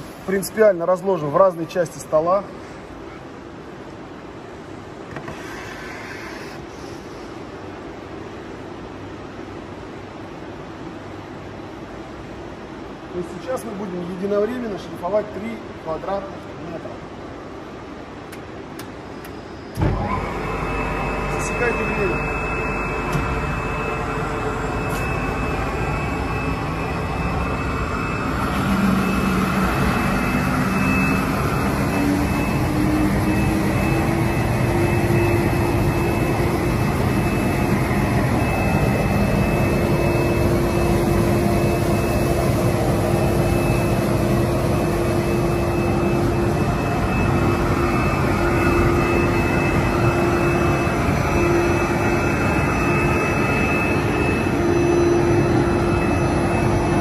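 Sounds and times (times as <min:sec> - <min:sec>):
humming tone rising in pitch: 0:19.4 - 0:57.0.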